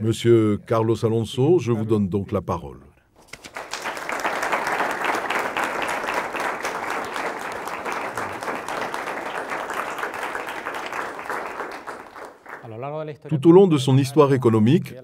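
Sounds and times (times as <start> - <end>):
audience applauding: 3.3 - 12.7.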